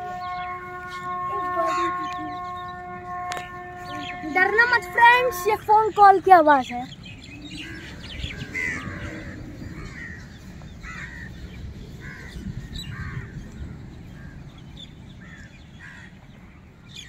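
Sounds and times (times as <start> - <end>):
crows cawing: 7.6 - 11.4, 12.0 - 14.4, 15.2 - 16.2.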